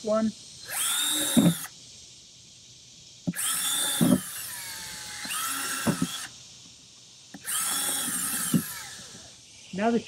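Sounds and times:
cordless drill boring plastic: 0:00.6 - 0:01.7, 0:03.3 - 0:06.3, 0:07.4 - 0:09.2.

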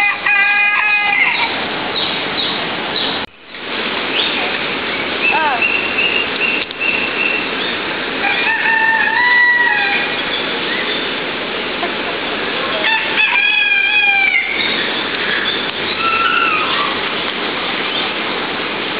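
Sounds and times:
roosters crowing: 0:00.0 - 0:02.5, 0:08.0 - 0:10.7, 0:12.8 - 0:17.2.

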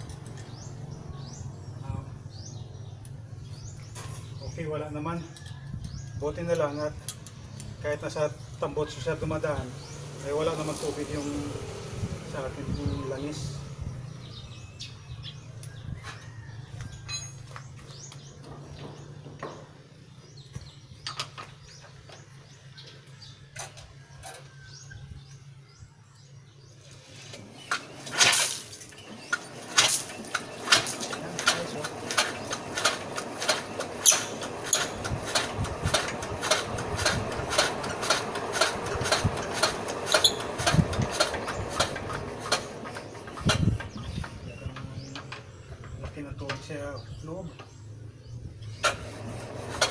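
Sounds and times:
clicks and taps on engine: 0:29.0 - 0:46.7, 0:48.8 - 0:49.9.

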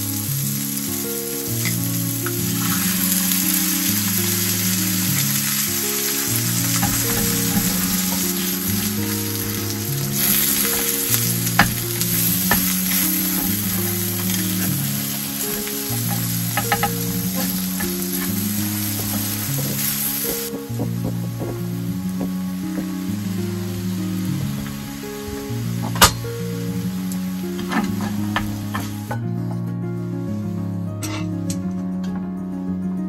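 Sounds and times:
egg and sausage sizzling: 0:00.0 - 0:29.2
soft background music: 0:00.0 - 0:33.0
chopsticks clicking against pan: 0:01.6 - 0:21.0.

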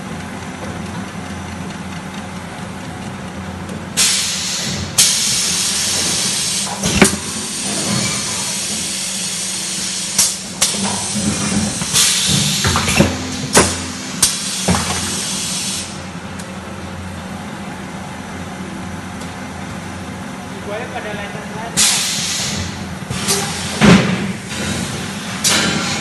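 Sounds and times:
machinery clanking: 0:10.1 - 0:16.5.

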